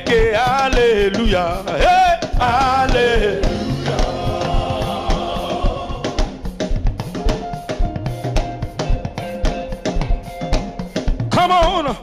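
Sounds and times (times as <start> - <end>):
drum kit beat: 0.0 - 12.0
sustained chords: 3.2 - 6.9.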